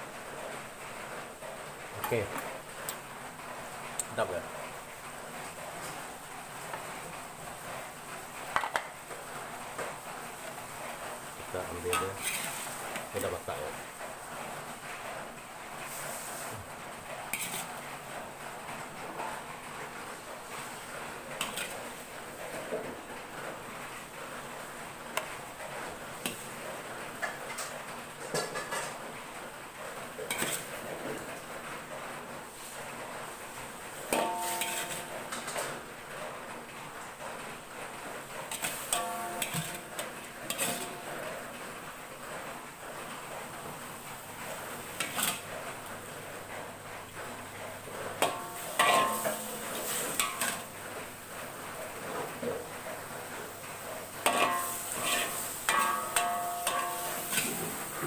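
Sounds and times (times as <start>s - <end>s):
metal cookware clanking: 11.6s - 13.6s, 17.3s - 17.7s, 21.4s - 21.8s, 30.2s - 30.8s, 34.0s - 35.8s, 38.5s - 41.4s, 44.9s - 45.5s, 48.1s - 50.8s, 54.1s - 58.0s
metal spoon clinking on pan: 34.1s - 35.5s, 38.5s - 41.1s, 48.2s - 50.7s, 54.2s - 57.6s
steady hiss: 37.7s - 58.0s.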